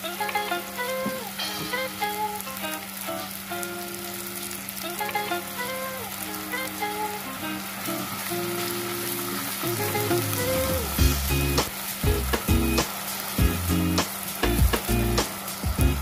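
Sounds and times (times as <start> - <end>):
background music with beat: 0.0 - 2.5, 9.6 - 16.0
sauce sizzling in a pan: 0.0 - 16.0.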